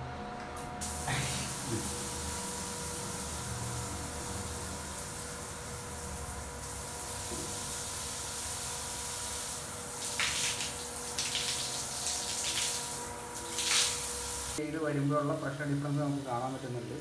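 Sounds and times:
shower water hissing on tiles: 0.8 - 14.6, 15.2 - 17.0
water splashing on arm: 10.0 - 12.9.

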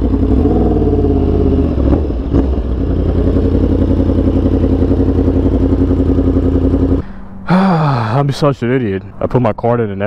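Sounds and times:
motorcycle engine idling: 0.0 - 8.0.

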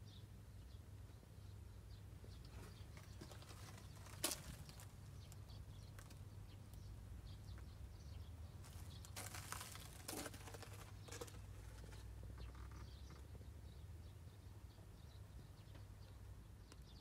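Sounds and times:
soft rustles and clicks: 2.4 - 6.2, 8.6 - 12.8.

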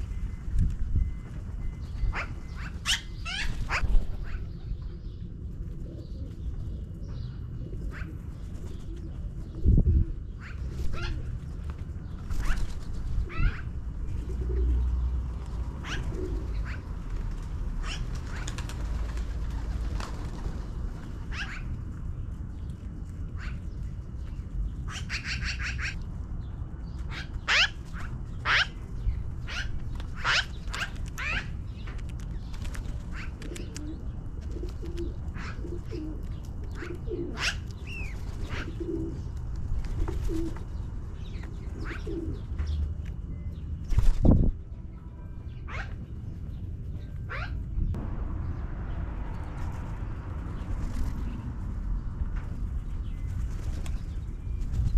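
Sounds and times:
magpies calling: 1.7 - 5.0, 10.2 - 11.4, 12.0 - 14.8, 15.8 - 17.1, 17.8 - 18.8, 21.2 - 21.8, 23.3 - 23.8, 24.7 - 42.8, 45.5 - 48.0
magpie rattling chatter: 27.1 - 32.5
low rumble: 42.4 - 54.9.

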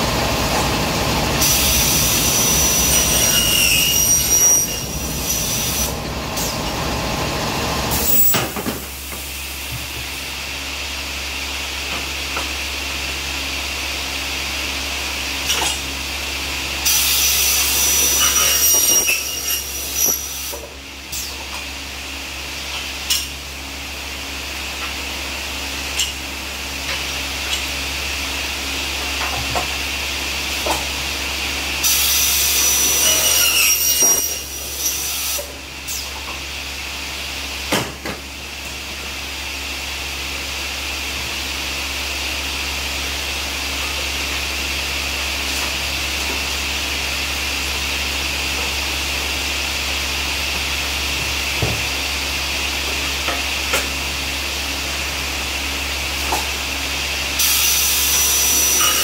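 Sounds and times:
cutting saw motor whining: 1.4 - 6.6
saw blade screeching through metal: 1.4 - 6.6, 16.8 - 21.4, 31.8 - 36.2, 57.4 - 59.0.

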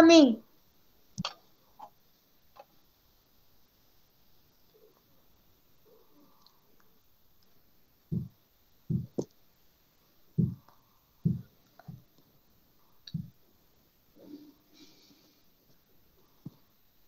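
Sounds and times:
low thumps and clicks: 8.1 - 9.3, 10.4 - 12.1, 13.1 - 13.4.

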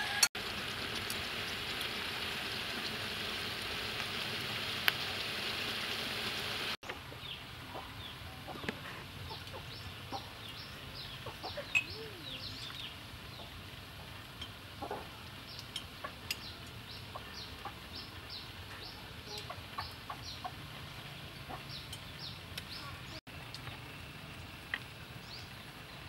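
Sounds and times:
chickens clucking and peeping: 6.8 - 23.2.

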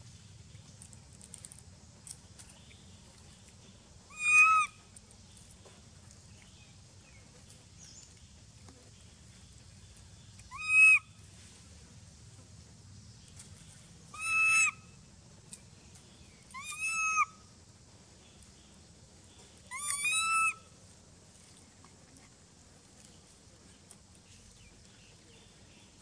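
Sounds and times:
monkey coo calls: 4.1 - 4.8, 10.5 - 11.1, 14.1 - 14.8, 16.6 - 17.4, 19.7 - 20.6.

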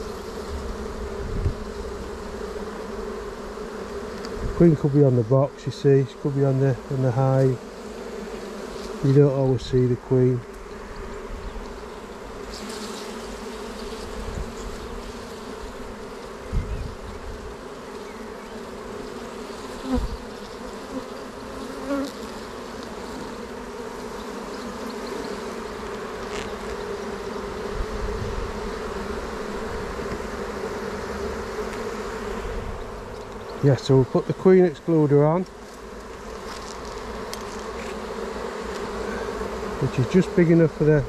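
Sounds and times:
honeybees buzzing: 0.0 - 41.0.

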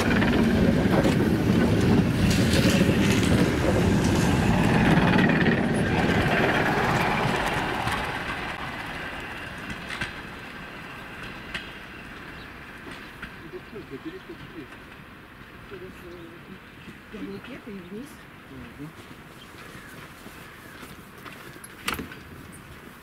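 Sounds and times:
wheels clattering over rails: 0.0 - 15.2
train cars rumbling: 0.0 - 23.0.

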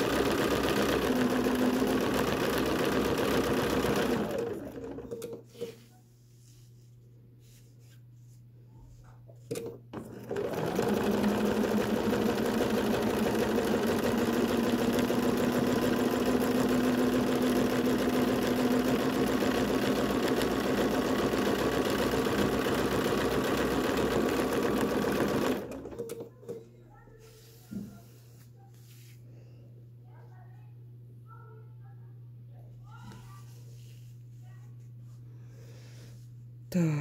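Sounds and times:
sewing machine running fast: 0.0 - 5.1, 10.0 - 26.2.

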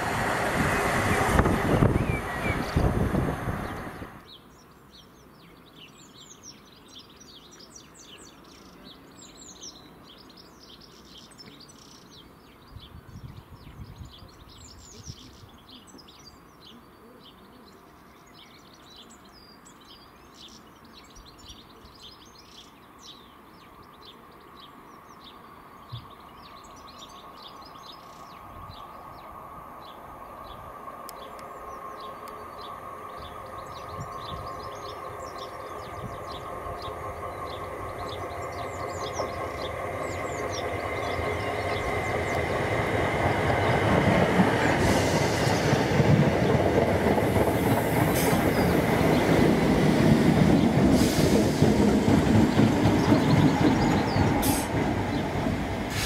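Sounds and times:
electric train hum: 0.0 - 4.3, 23.8 - 56.0
birds singing: 0.1 - 56.0.

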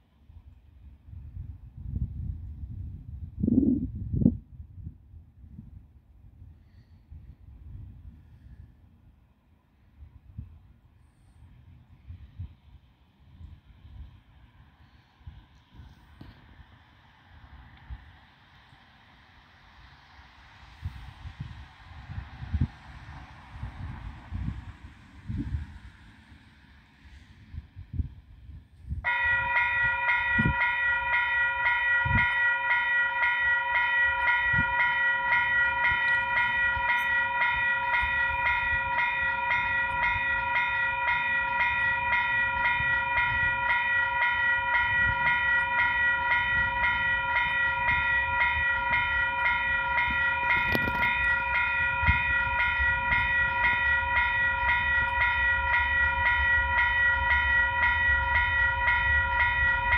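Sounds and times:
level crossing warning bell: 29.1 - 59.9.

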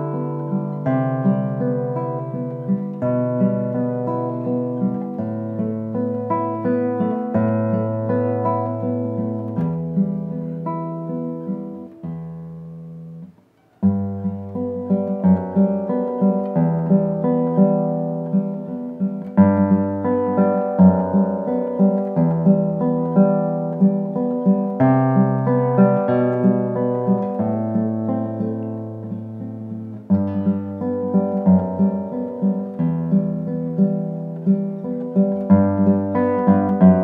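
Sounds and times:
classical guitar fingerstyle: 0.0 - 37.0.

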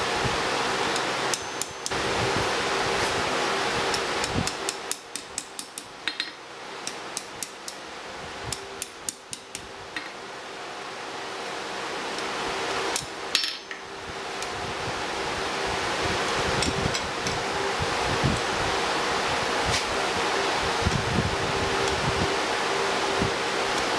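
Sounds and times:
steady rushing hiss: 0.0 - 23.9
hammer tapping hot metal on anvil: 0.9 - 2.0, 3.9 - 7.8, 8.5 - 10.2, 13.0 - 13.8.

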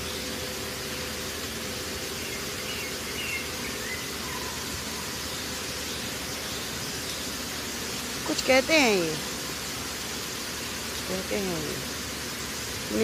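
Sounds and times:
open-air hiss: 0.0 - 13.0
faint bird chirps: 2.2 - 7.3.

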